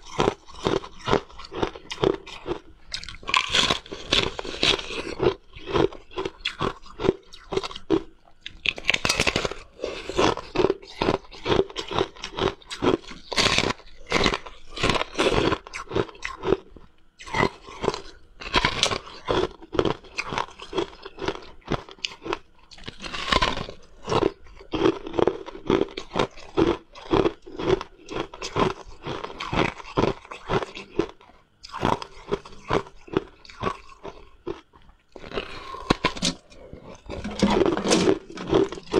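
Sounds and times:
crunching ice while chewing: 0.0 - 38.9.

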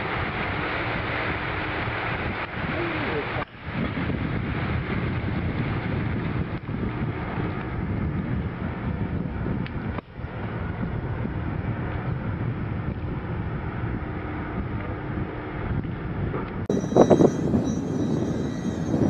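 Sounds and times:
low rumble: 0.0 - 19.0
wind noise on microphone: 0.0 - 19.0
faint high steady tones: 16.7 - 19.0.

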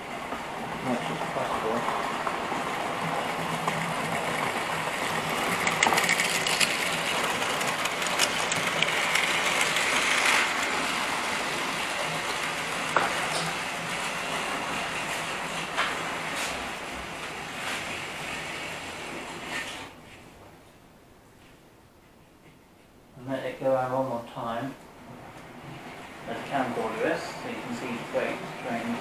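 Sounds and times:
model train running rumble: 0.0 - 19.8, 25.6 - 29.0
wheels clicking on rails: 0.0 - 20.0.

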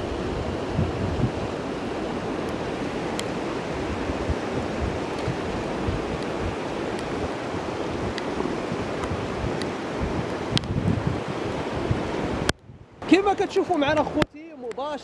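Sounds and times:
water rushing: 0.0 - 15.0
wind buffeting microphone: 0.0 - 15.0
raindrops ticking on camera: 2.4 - 3.4, 4.2 - 7.3, 8.0 - 11.0, 13.2 - 15.0.

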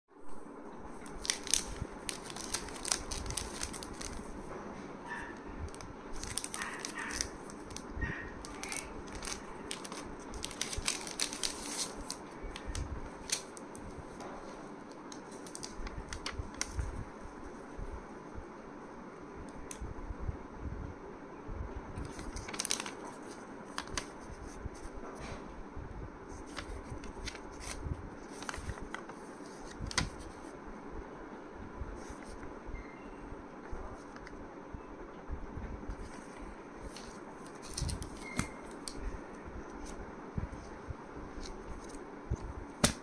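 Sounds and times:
paper banknotes rustling: 1.0 - 4.4, 5.7 - 13.8, 22.0 - 25.0, 26.3 - 30.6, 35.9 - 43.0.

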